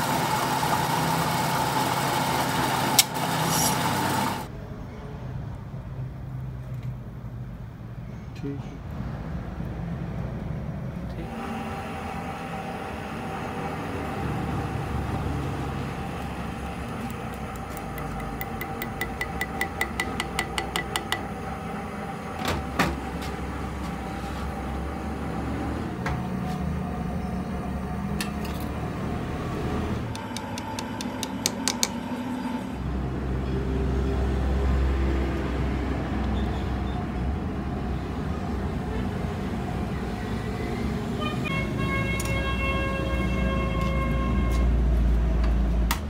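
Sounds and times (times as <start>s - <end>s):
machine hum with whine: 11.2s - 33.7s
sharp metal knock: 18.0s - 21.3s.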